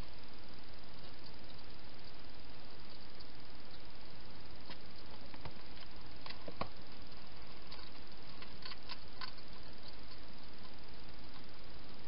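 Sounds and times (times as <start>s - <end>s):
steady hiss: 0.0s - 12.0s
hedgehog clicking and crackling: 4.6s - 12.0s.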